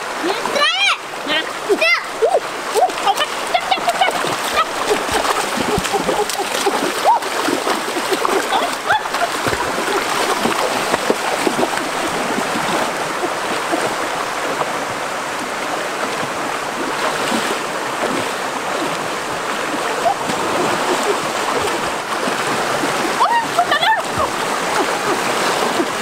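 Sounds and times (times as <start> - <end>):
people wading and splashing: 0.0 - 26.0
stream rushing over rocks: 0.0 - 26.0.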